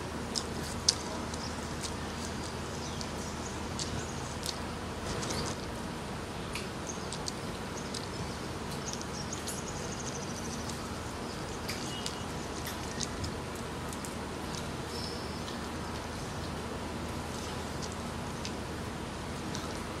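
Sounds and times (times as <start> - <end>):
background hiss: 0.0 - 20.0
bird chirps: 6.9 - 13.2, 14.9 - 15.6.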